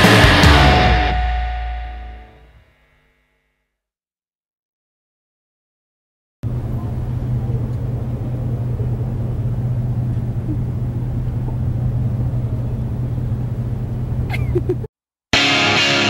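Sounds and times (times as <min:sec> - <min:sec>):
rock music with distorted guitar: 0:00.0 - 0:02.4, 0:15.4 - 0:16.0
city street traffic rumble: 0:06.4 - 0:14.9.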